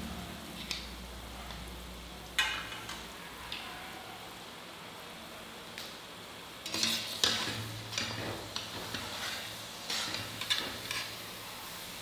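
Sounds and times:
food sizzling in hot oil: 5.6s - 12.0s
spoon scraping and knocking pan: 6.6s - 11.2s.

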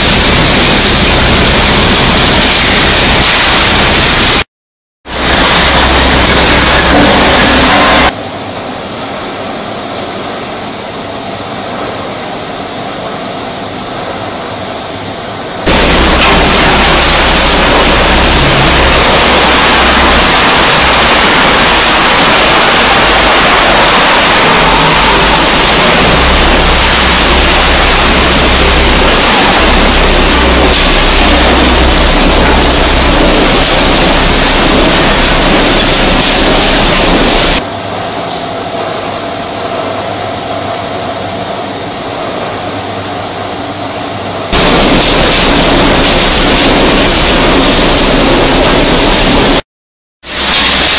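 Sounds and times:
machinery din: 0.0s - 4.4s, 5.1s - 8.2s, 15.6s - 37.6s, 44.5s - 49.6s
shredded scrap pouring on conveyors: 5.1s - 8.1s, 15.7s - 37.6s, 44.5s - 49.6s, 50.3s - 50.9s.

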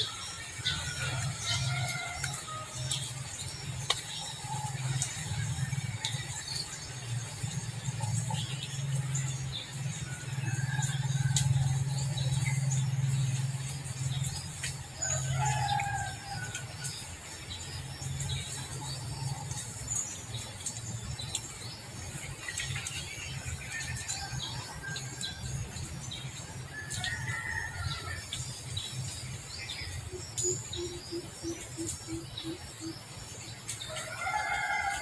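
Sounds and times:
rooster crowing: 15.0s - 16.7s, 33.9s - 35.0s.

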